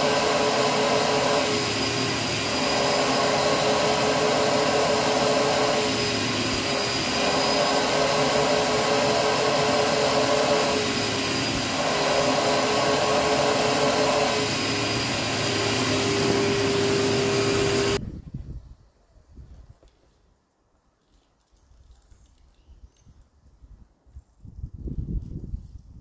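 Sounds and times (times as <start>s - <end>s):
vacuum motor humming: 0.0s - 18.0s.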